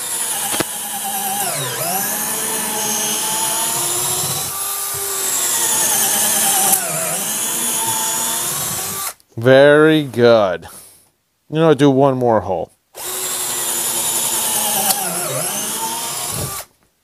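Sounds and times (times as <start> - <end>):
cordless drill boring into wood: 0.0 - 9.2, 13.0 - 16.7.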